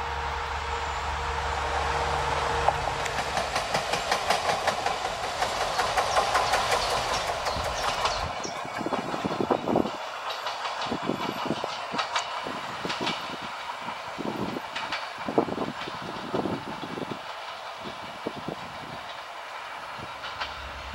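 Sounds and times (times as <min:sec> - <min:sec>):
diesel engine drone: 0:00.0 - 0:04.0, 0:18.3 - 0:20.9.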